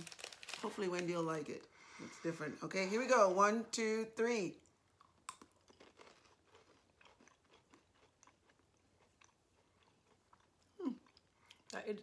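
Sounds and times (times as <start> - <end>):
crunching biscuit sticks: 5.0 - 11.8.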